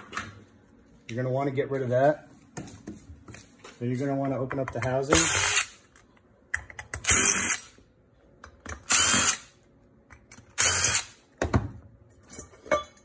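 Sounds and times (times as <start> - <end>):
cordless drill running: 5.2 - 5.7, 8.9 - 9.5, 10.6 - 11.1.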